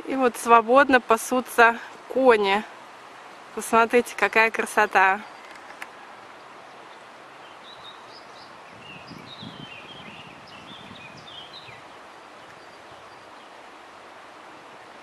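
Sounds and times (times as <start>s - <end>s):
rushing mountain river: 0.0s - 15.0s
small birds chirping: 4.1s - 13.6s.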